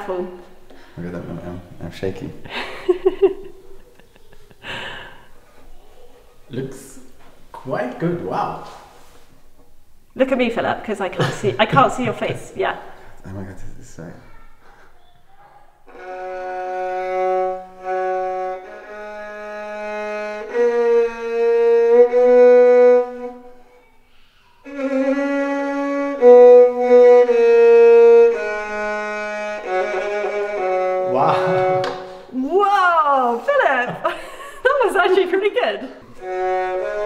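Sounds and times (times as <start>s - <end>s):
people laughing: 2.4s - 5.0s, 11.1s - 12.6s, 31.1s - 31.9s
violin long bowed notes: 15.9s - 23.8s, 24.6s - 32.4s, 34.7s - 37.0s.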